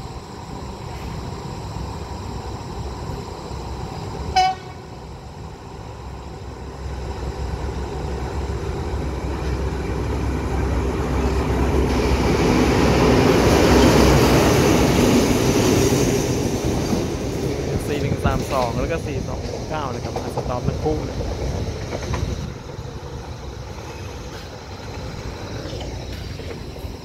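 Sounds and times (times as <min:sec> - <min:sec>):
diesel locomotives passing: 0:00.0 - 0:27.0
short high train horn toot: 0:04.3 - 0:04.9.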